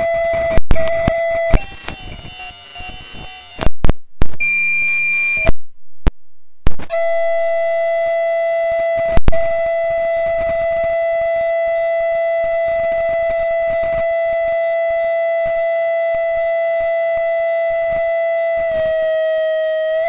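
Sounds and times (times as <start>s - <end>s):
feedback whine: 0.0s - 20.0s.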